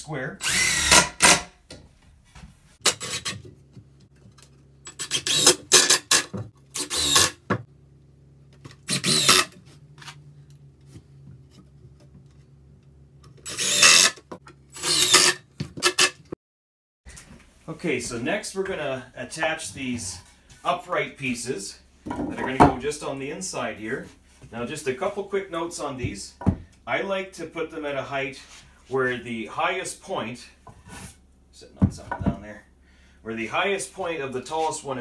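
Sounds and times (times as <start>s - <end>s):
cordless drill driving screws: 0.4s - 1.5s, 4.8s - 7.4s, 8.7s - 9.6s, 13.4s - 16.2s.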